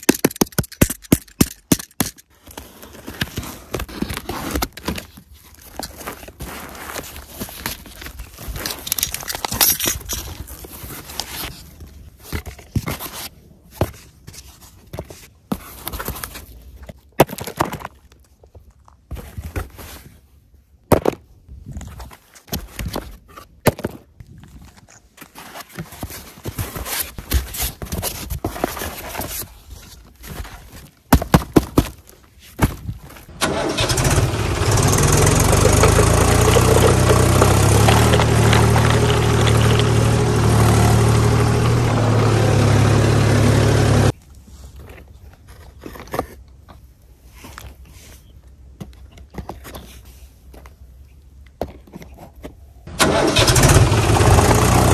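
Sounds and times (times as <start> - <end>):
cardboard and foam rustling: 2.0 - 20.7, 21.6 - 33.3
tractor engine running: 33.3 - 44.1, 52.9 - 54.9.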